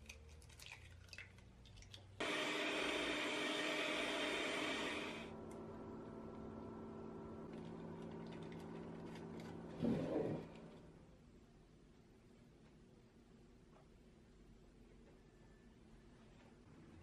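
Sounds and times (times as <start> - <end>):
electric hand mixer whirring: 2.2 - 10.8.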